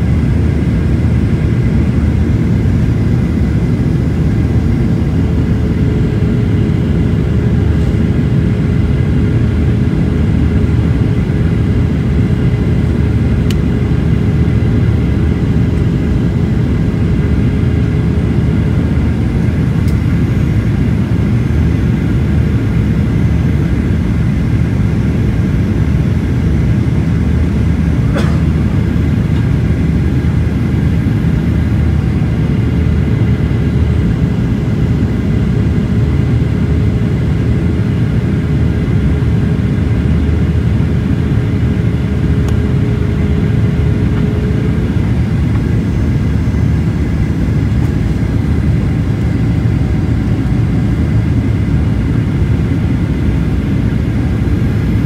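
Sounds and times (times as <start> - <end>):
engine and airflow rumble: 0.0 - 55.0
faint steady whine: 0.0 - 55.0.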